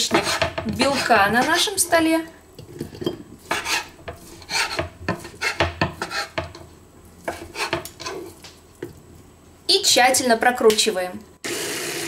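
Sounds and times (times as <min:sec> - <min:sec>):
knife chopping on wooden board: 0:00.0 - 0:01.6, 0:03.5 - 0:06.6, 0:07.3 - 0:08.2.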